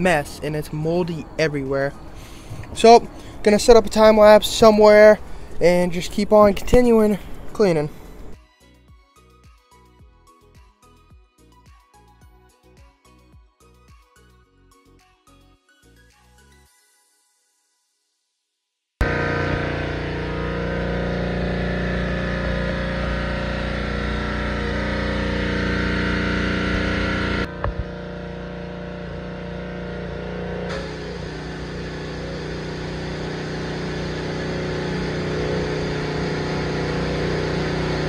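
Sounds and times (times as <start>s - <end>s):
pressure washer motor drone: 19.0s - 38.0s
water jet spraying on boat floor: 30.7s - 38.0s.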